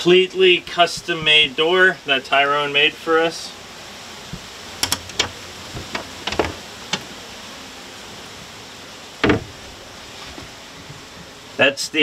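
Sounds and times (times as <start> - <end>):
hatch door clicks: 4.8 - 7.1
hatch door knock: 9.2 - 9.6.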